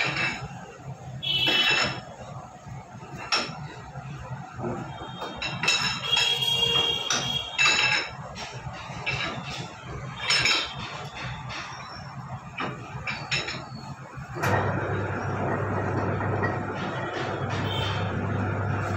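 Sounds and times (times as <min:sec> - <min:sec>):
metallic clanks from pipe rolling machine: 0:00.0 - 0:00.6, 0:04.8 - 0:18.9.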